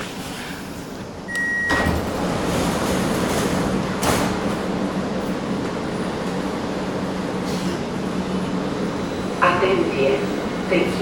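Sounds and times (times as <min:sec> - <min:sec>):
metro train car hum: 0:00.0 - 0:11.0
short high beep: 0:01.3 - 0:01.9.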